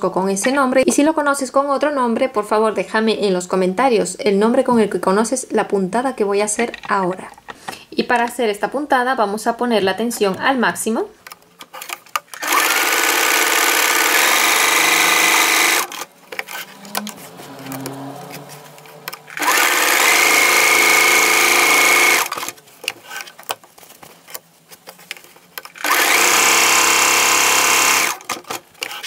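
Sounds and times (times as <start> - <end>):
sewing machine stitching: 12.3 - 18.1, 19.1 - 23.4, 25.7 - 29.0.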